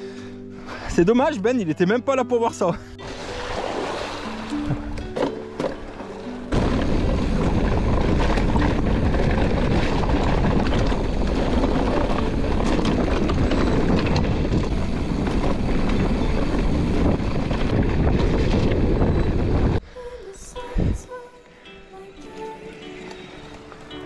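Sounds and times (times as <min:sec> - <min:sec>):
mountain bike rolling and rattling: 0:04.6 - 0:19.8
bike knocking over bumps: 0:04.7 - 0:16.0
wind on microphone: 0:06.5 - 0:19.8.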